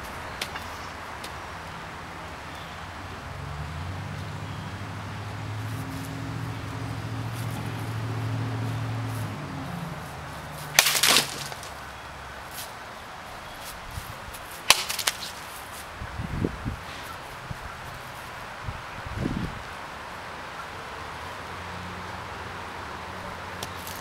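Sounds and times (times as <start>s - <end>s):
sword swishing through mat: 10.6s - 11.8s.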